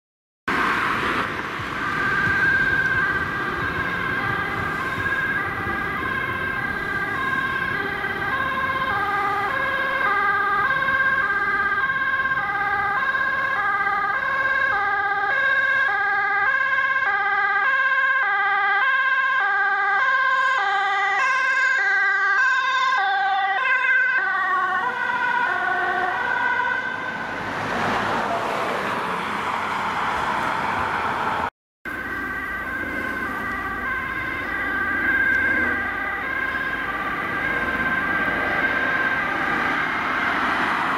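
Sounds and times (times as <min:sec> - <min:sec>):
ambulance two-tone sirens: 0:00.5 - 0:40.9
vehicle driving past: 0:25.0 - 0:40.9.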